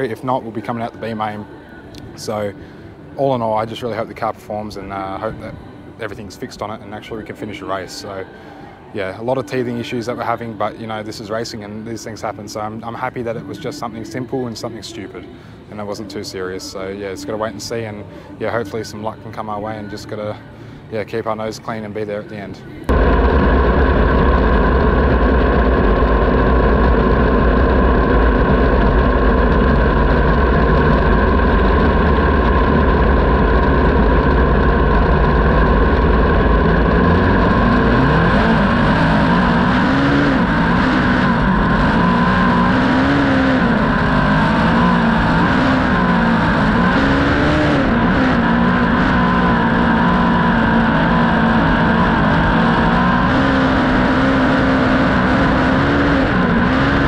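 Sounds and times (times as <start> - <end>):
race car engine revving: 22.9 - 57.0.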